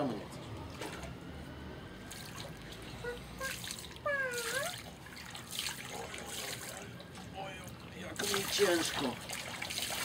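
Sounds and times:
water trickling and splashing: 2.0s - 10.0s
short high-pitched voice: 3.0s - 4.8s.

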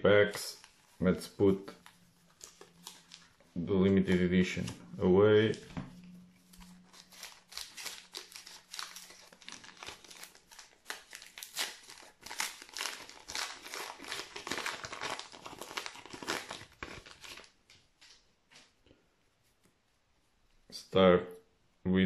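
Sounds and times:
wrapper crinkling and tearing: 1.7s - 3.4s, 6.5s - 17.6s.

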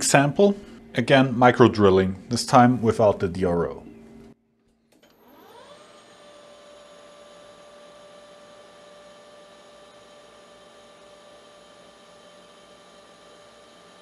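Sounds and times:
lathe motor whining: 5.0s - 14.0s.

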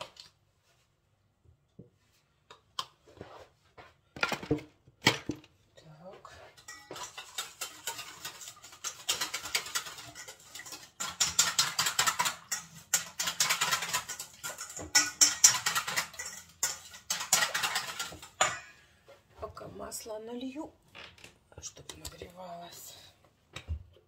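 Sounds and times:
whisk clicking in metal bowl: 6.6s - 18.6s.

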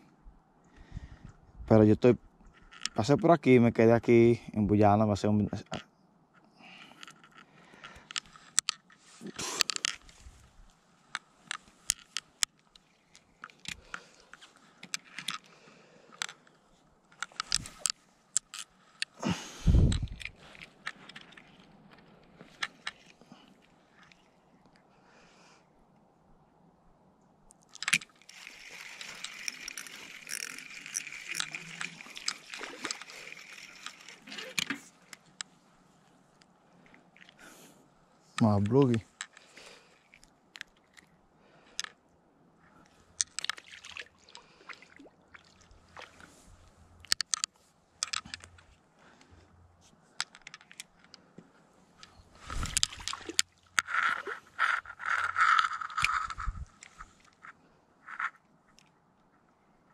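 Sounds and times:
rustle: 6.3s - 25.6s, 27.6s - 41.9s, 42.5s - 59.9s
fish splashing in water: 28.2s - 34.6s.

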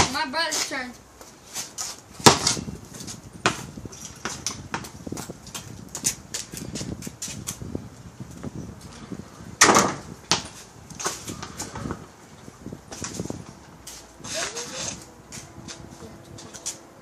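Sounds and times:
soccer ball kick thump: 2.2s - 2.6s, 9.6s - 10.5s.

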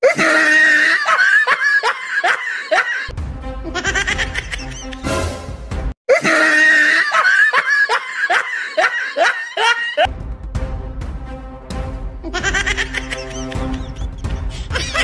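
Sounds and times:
background music: 0.1s - 15.0s
laughing sound effect: 3.7s - 5.0s, 12.2s - 15.0s.

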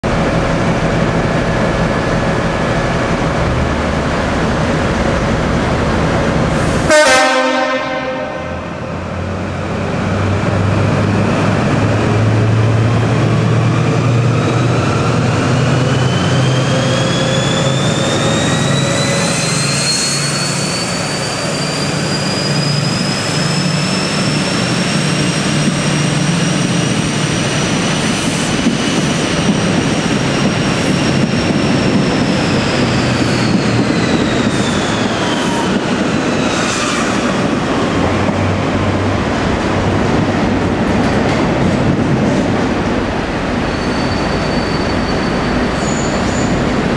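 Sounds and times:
diesel locomotive engine: 0.0s - 46.9s
train horn blast: 6.8s - 8.8s.

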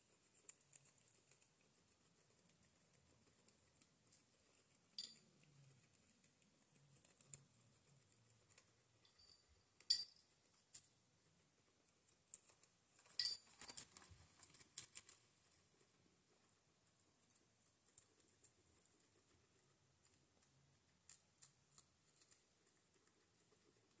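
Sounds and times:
guinea pigs chewing: 0.0s - 24.0s
sharp clicks and clinks: 5.0s - 5.3s, 9.0s - 10.3s, 13.1s - 13.8s.

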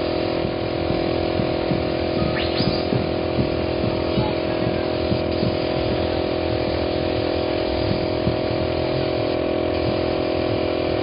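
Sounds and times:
air compressor droning: 0.0s - 11.0s.

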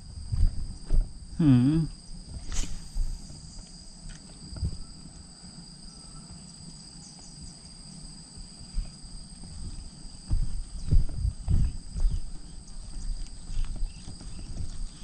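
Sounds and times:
insects chirring: 0.0s - 15.0s.

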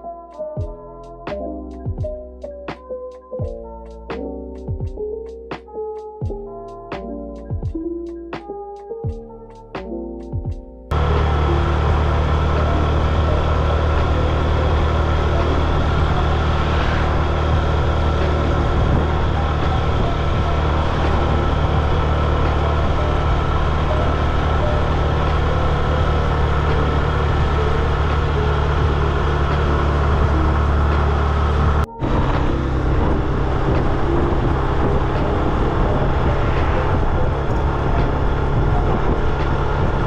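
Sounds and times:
car engine and road noise: 10.9s - 40.0s.

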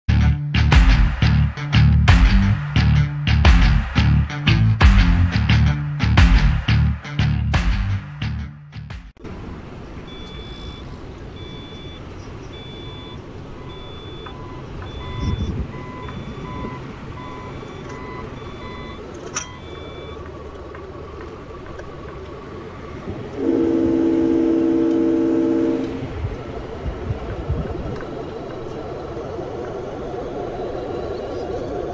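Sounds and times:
reversing beeps: 10.1s - 20.3s
multi-tone air horn blast: 23.3s - 26.2s.

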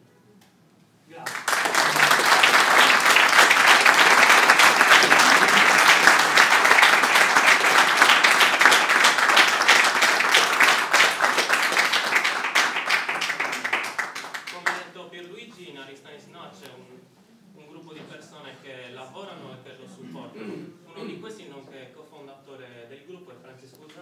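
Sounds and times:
audience applauding: 1.2s - 14.8s.

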